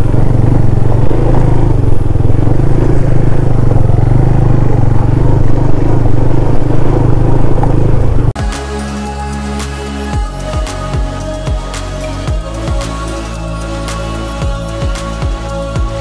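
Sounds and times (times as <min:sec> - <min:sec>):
motorcycle engine cruising: 0:00.0 - 0:16.0.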